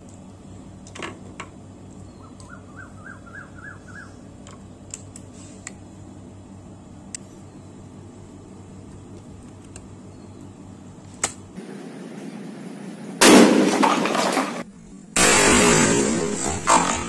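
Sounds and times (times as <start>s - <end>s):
shotgun blast: 13.2s - 14.1s, 15.2s - 17.0s.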